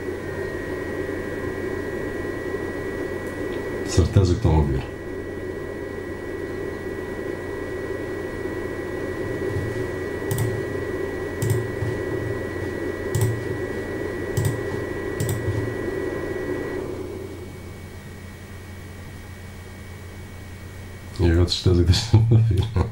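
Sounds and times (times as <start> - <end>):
cooling fan rushing air: 0.0 - 22.9
fan high whine: 0.0 - 22.9
sharp clicks: 10.3 - 10.6, 11.4 - 11.6, 13.1 - 13.4, 14.4 - 14.6.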